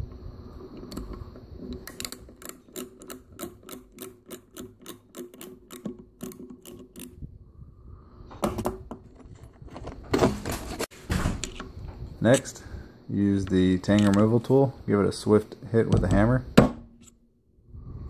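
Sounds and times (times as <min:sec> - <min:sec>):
tool turning with small clicks: 0:00.7 - 0:07.2, 0:13.4 - 0:14.3.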